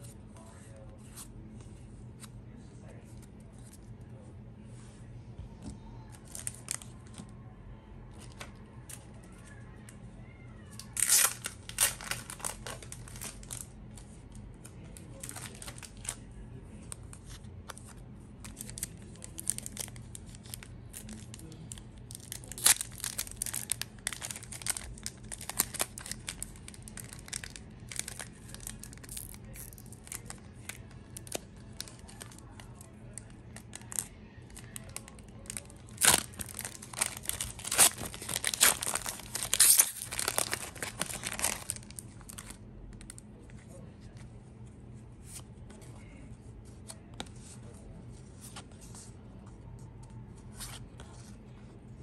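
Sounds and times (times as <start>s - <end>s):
foil wrapper crinkling and tearing: 10.7s - 13.7s, 15.0s - 16.2s, 18.4s - 43.2s.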